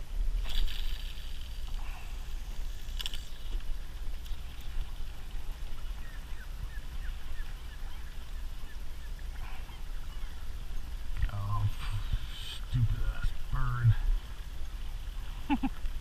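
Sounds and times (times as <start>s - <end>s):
wind and water on a boat: 0.0s - 16.0s.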